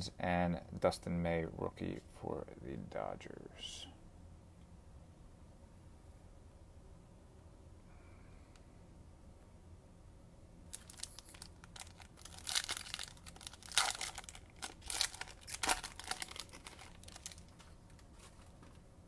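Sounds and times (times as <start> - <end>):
plastic wrapper tearing and crinkling: 10.7 - 18.5.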